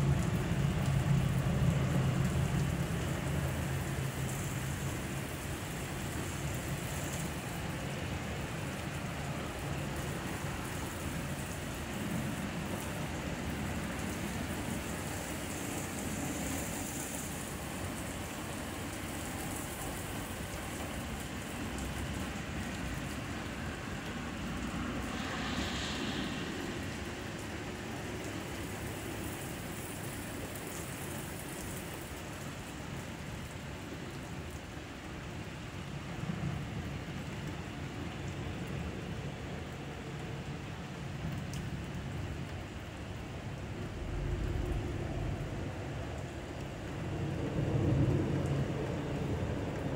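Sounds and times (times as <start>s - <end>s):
heavy rain on pavement: 0.0s - 49.9s.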